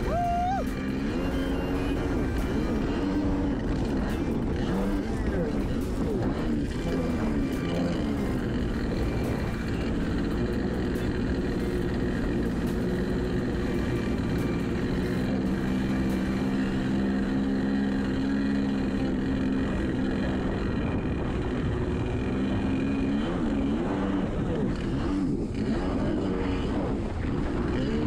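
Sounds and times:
jet ski engine running: 0:00.0 - 0:28.0.

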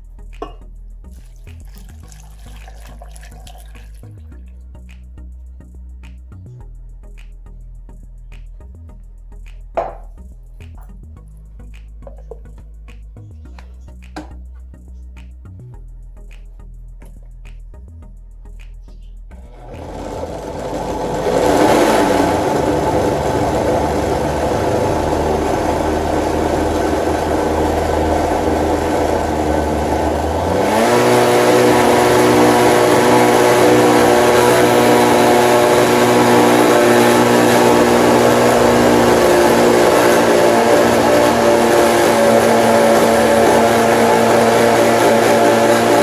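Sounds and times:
blender motor running: 0:19.5 - 0:46.0.

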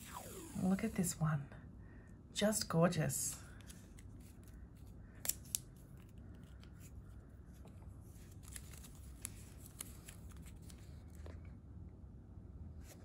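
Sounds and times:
paper tape rustling: 0:08.0 - 0:11.3.

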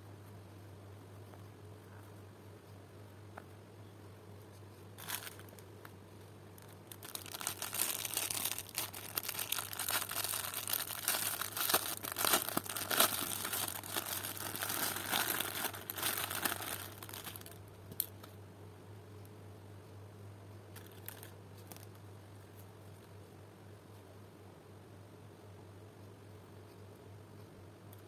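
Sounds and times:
plastic packaging crinkling: 0:05.0 - 0:05.7, 0:06.5 - 0:18.2, 0:20.8 - 0:22.0.

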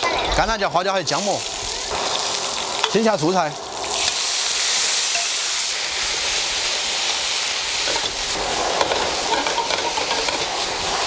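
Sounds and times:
hot oil sizzling in a wok: 0:00.0 - 0:11.0
metal ladle scraping a wok: 0:07.8 - 0:10.9.

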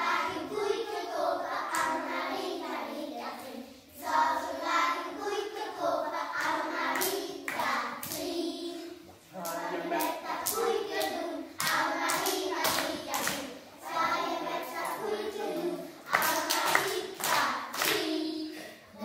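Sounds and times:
children singing together: 0:00.0 - 0:19.0
hand claps: 0:09.4 - 0:13.5, 0:16.1 - 0:18.1.

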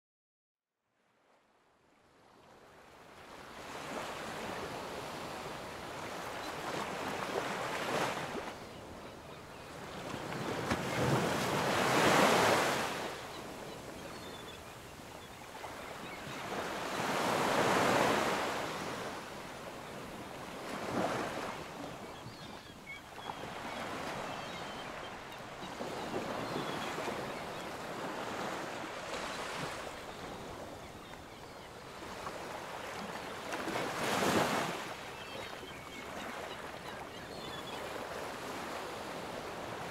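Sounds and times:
ocean waves breaking: 0:03.3 - 0:09.0, 0:09.6 - 0:14.4, 0:15.5 - 0:22.5, 0:23.1 - 0:35.0.

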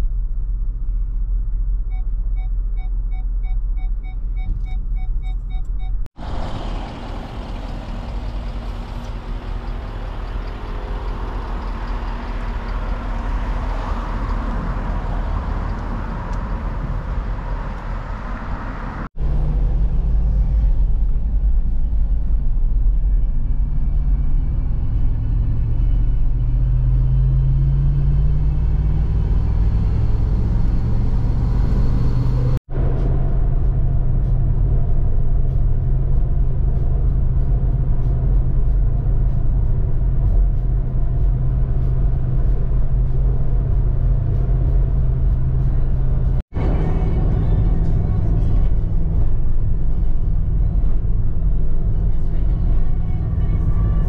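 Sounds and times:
low engine drone rising in pitch: 0:00.0 - 0:54.0
vehicle engine and road noise: 0:00.0 - 0:54.0.

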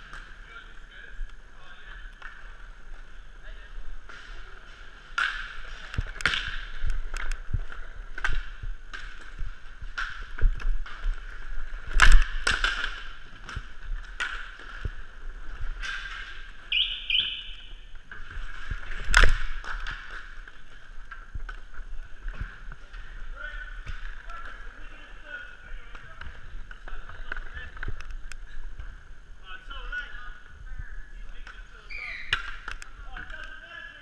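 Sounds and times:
hockey sticks clacking: 0:00.0 - 0:29.0, 0:31.3 - 0:34.0
inline skate wheels rolling: 0:00.0 - 0:30.5.

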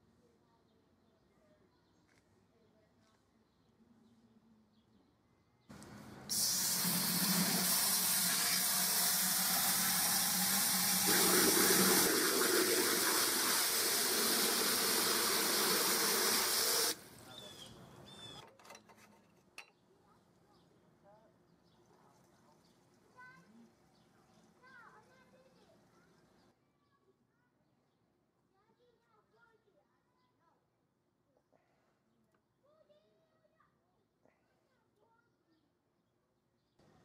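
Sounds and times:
hose nozzle spraying water: 0:06.3 - 0:17.0.

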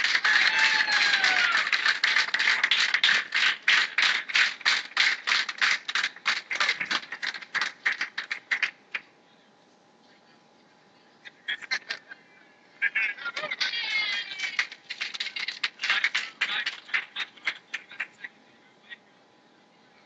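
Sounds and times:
crowd clapping: 0:00.0 - 0:09.1, 0:13.3 - 0:18.2.

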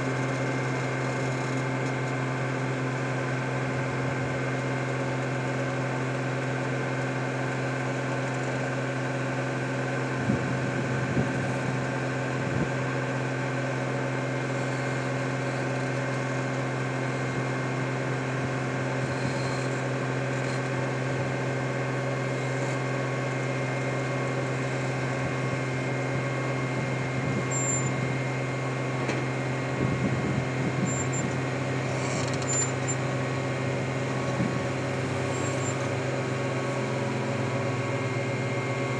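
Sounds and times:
diesel engine running steadily: 0:00.0 - 0:38.9.

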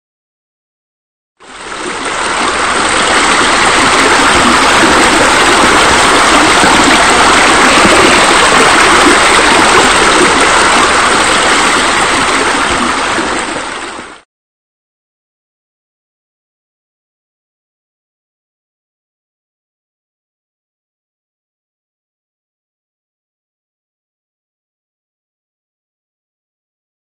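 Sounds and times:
running water: 0:01.4 - 0:14.2.

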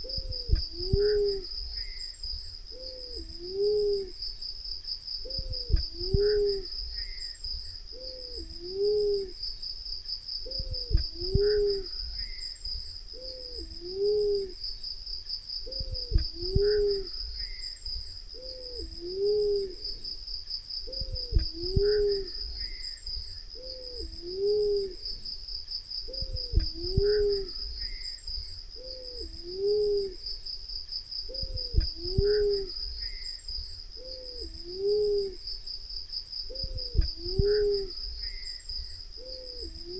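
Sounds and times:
dove hooting coos: 0:00.0 - 0:02.0, 0:02.7 - 0:04.2, 0:05.2 - 0:07.2, 0:07.9 - 0:09.4, 0:10.4 - 0:12.4, 0:13.1 - 0:14.6, 0:15.6 - 0:17.6, 0:18.3 - 0:20.1, 0:20.8 - 0:22.8, 0:23.5 - 0:25.2, 0:26.1 - 0:28.0, 0:28.8 - 0:30.4, 0:31.3 - 0:33.2, 0:34.0 - 0:35.5, 0:36.5 - 0:38.4, 0:39.2 - 0:39.9
high insect buzz: 0:00.0 - 0:39.9
dull low thump: 0:05.3 - 0:06.3, 0:10.6 - 0:11.5, 0:15.8 - 0:16.7, 0:21.0 - 0:21.9, 0:26.2 - 0:27.2, 0:31.4 - 0:32.3.

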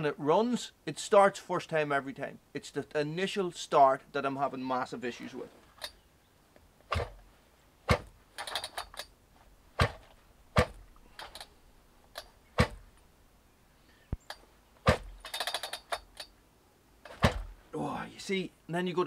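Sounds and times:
chainsaw recoil starter clacks: 0:07.9 - 0:09.1, 0:10.6 - 0:11.5, 0:14.3 - 0:16.3
short metallic rattle: 0:07.9 - 0:09.1, 0:09.8 - 0:12.9, 0:14.3 - 0:16.3.

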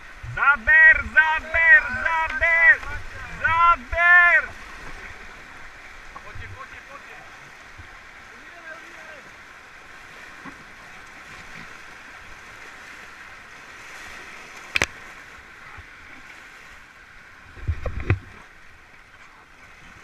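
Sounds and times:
heavy low thumps: 0:00.0 - 0:03.8
rushing whitewater stream: 0:00.0 - 0:20.0.

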